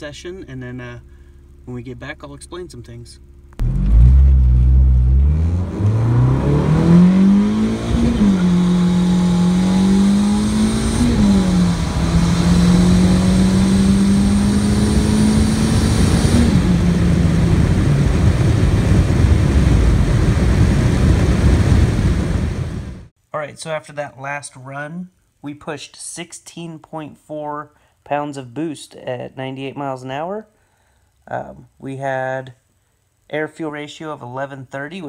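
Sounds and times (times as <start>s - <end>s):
car engine accelerating: 0.8s - 23.1s.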